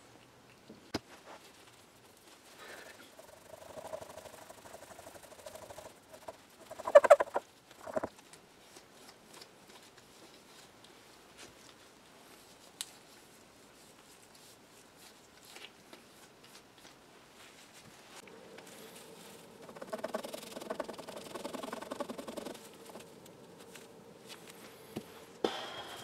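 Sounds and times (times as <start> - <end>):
faint rustling: 1.0 - 25.4.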